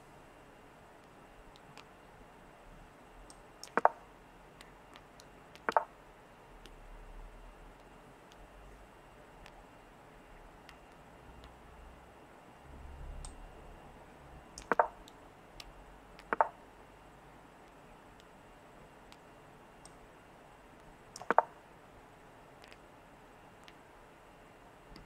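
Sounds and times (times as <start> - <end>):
chess piece move clicks: 3.3 - 4.0, 4.6 - 5.9, 14.6 - 16.6, 20.8 - 21.5
faint ticks: 3.3 - 4.0, 4.6 - 5.9, 7.8 - 8.5, 10.6 - 11.6, 20.8 - 21.6, 22.6 - 22.8, 23.6 - 23.8.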